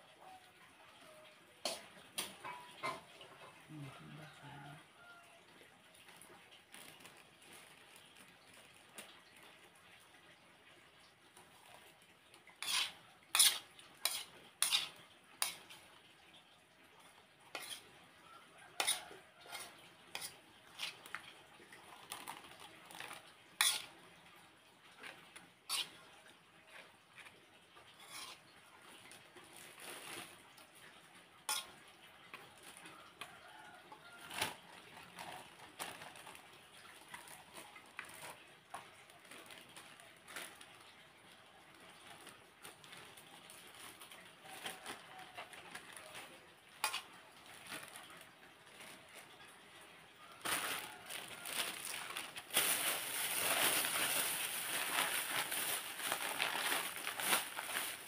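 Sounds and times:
plastic bags being handled: 6.0 - 9.6, 20.7 - 24.0, 28.8 - 31.0, 31.6 - 33.2, 34.1 - 58.0
plastic rustling: 6.1 - 9.5, 18.8 - 24.0, 28.2 - 31.7, 34.2 - 49.5, 50.2 - 58.0.

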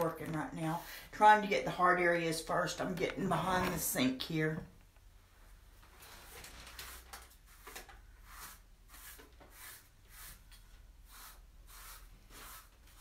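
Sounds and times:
paintbrush scrubbing strokes: 5.9 - 13.0.

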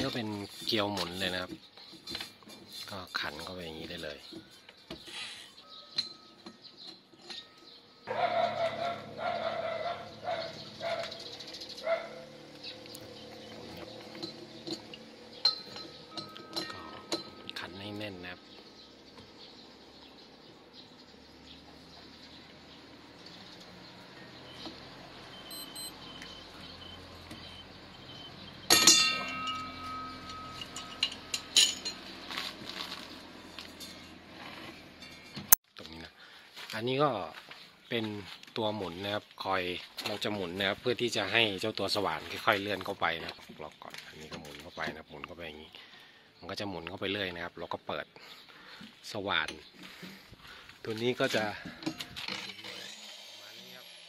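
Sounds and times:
wrench clanking on metal: 0.1 - 7.8, 13.4 - 17.8, 28.6 - 32.2.

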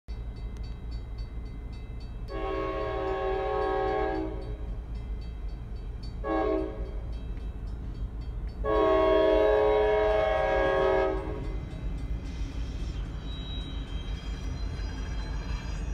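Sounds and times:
locomotive air horn: 2.3 - 4.6, 6.2 - 6.9, 8.6 - 11.5.

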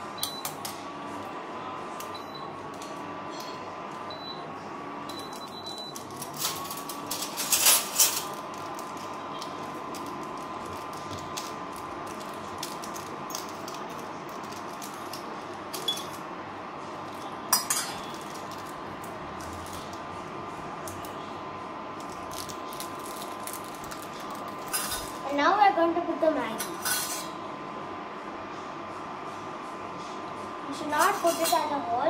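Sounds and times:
cooktop hum with high tone: 0.0 - 32.0
packet crinkling: 22.0 - 24.7.

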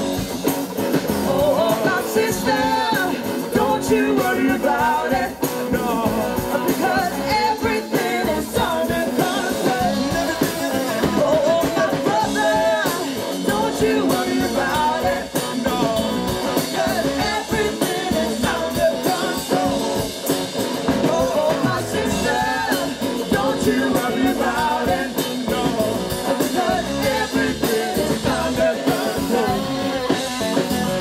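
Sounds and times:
live rock band: 0.0 - 31.0
man singing: 1.1 - 31.0
woman singing: 1.3 - 20.2, 21.0 - 31.0.

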